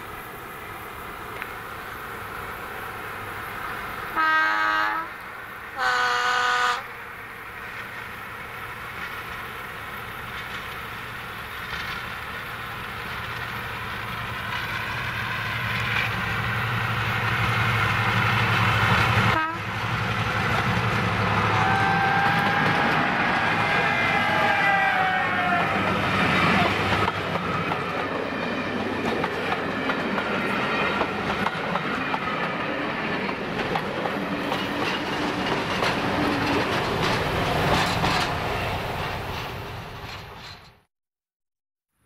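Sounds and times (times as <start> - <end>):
two-tone locomotive horn: 4.2 - 6.9, 19.3 - 19.8, 21.4 - 26.8.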